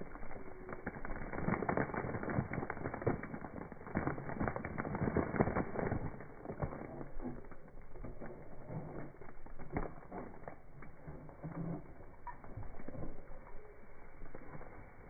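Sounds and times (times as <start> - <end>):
feet crushing crunchy snacks: 0.9 - 10.6.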